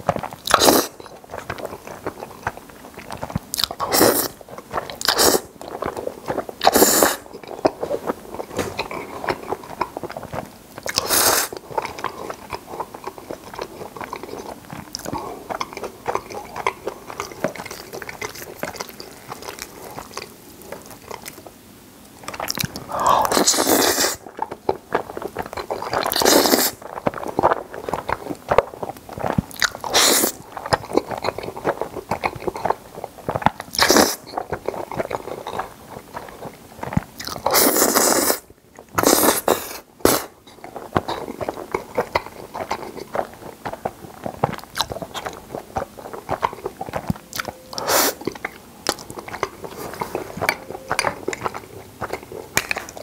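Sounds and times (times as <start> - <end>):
close chewing with wet mouth clicks: 0.0 - 53.0
loud slurps of noodles: 3.9 - 4.4, 5.1 - 5.5, 6.6 - 7.2, 11.0 - 11.6, 22.8 - 24.2, 26.1 - 26.8, 29.9 - 30.4, 37.5 - 38.4, 39.0 - 40.4, 47.8 - 48.2.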